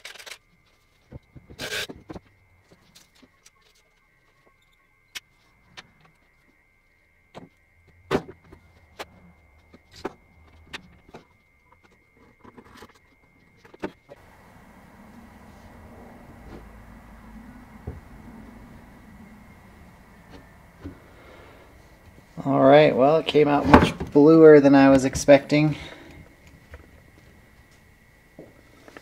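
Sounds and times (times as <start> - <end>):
faint steady hiss: 14.2 - 29.0.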